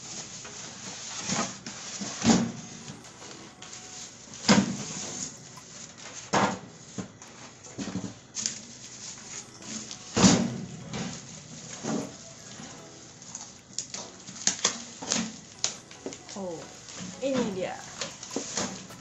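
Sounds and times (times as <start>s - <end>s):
plastic wrap rustling: 0.0s - 19.0s
styrofoam knocks: 1.2s - 2.6s.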